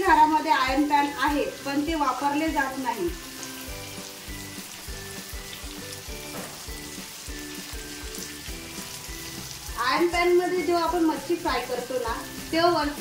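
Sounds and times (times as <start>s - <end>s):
fish sizzling in oil: 0.0s - 13.0s
background music with beat: 3.1s - 11.1s.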